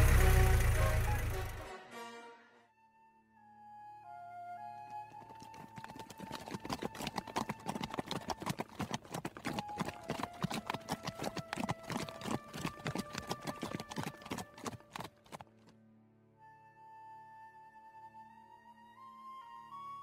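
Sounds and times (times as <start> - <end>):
horse hoofbeats on sand: 5.1 - 15.7.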